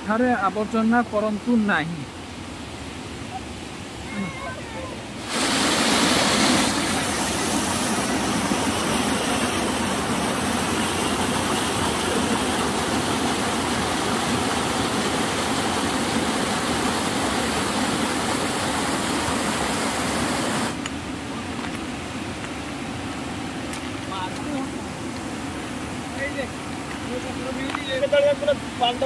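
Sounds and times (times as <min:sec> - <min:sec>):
stream rushing over rocks: 0:00.0 - 0:29.0.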